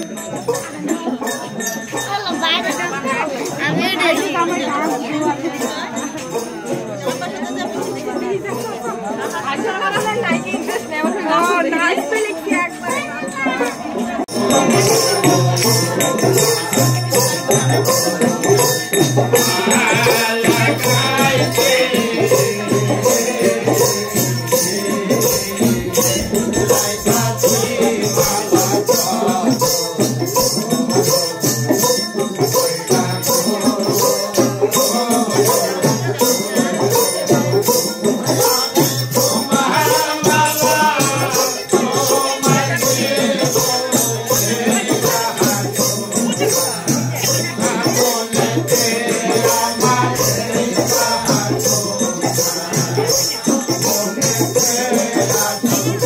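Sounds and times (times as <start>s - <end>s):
hand percussion rhythm: 0.0s - 56.0s
men singing together: 14.3s - 56.0s.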